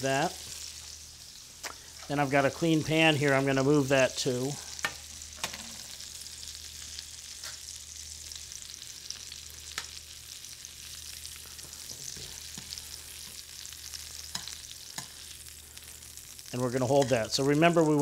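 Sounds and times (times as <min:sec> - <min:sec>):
meat sizzling in a pan: 0:00.0 - 0:18.0
tongs clicking against pan: 0:14.3 - 0:15.2.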